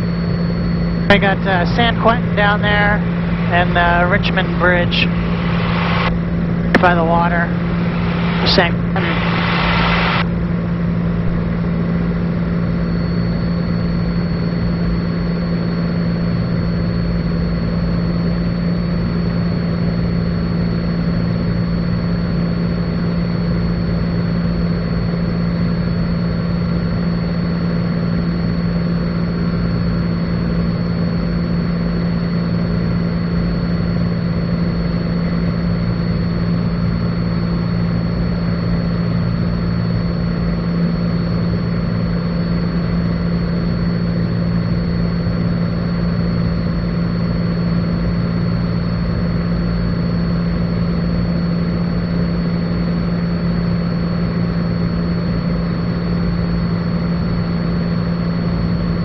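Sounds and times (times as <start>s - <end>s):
thin high whine: 0.0s - 19.7s
propeller plane engine droning: 0.0s - 59.0s.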